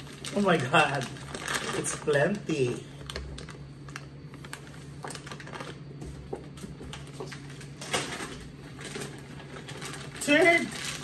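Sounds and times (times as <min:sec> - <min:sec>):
low steady hum: 0:00.0 - 0:11.0
plastic bag crinkling: 0:00.0 - 0:11.0.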